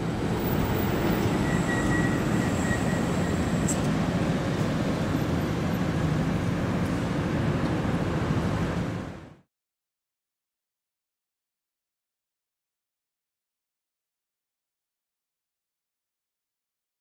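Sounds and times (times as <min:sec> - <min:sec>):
traffic rumble: 0:00.0 - 0:09.5.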